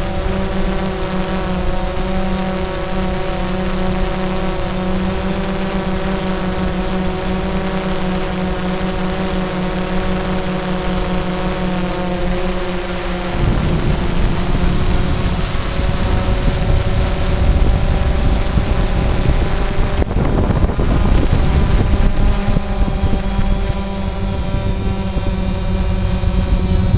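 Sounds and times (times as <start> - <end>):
drone propellers whining: 0.0 - 26.9
low rumble: 13.3 - 18.7.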